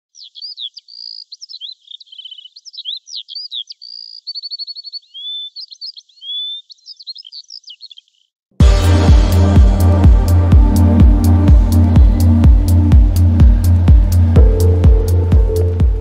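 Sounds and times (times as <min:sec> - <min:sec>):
songbird singing: 0:00.0 - 0:08.4.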